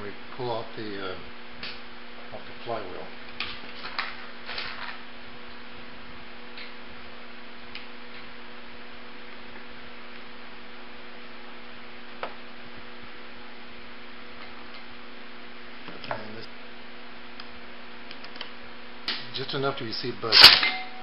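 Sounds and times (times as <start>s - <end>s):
electrical mains hum with hiss: 0.0s - 21.0s
sharp metallic click: 20.3s - 20.9s.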